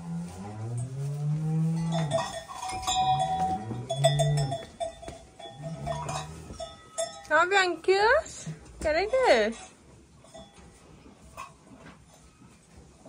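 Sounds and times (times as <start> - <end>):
neck bell clinking: 1.8 - 7.8.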